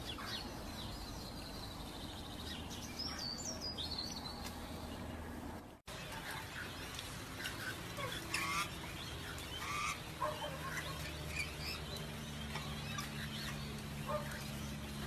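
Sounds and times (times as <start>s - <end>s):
parrots squawking and chirping: 6.2s - 11.9s, 12.5s - 14.5s.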